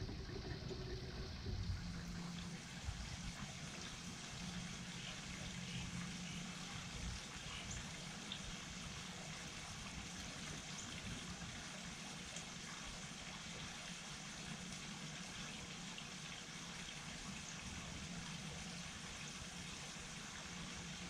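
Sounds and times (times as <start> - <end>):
faint low hum: 0.0 - 13.8.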